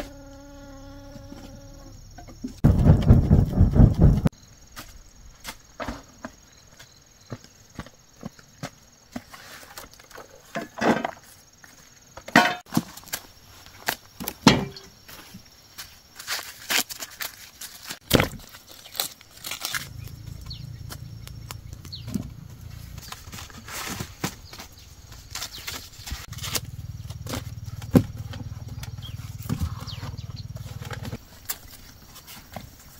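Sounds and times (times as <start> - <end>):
corn husks crackling and tearing: 12.7 - 14.5, 15.8 - 32.9.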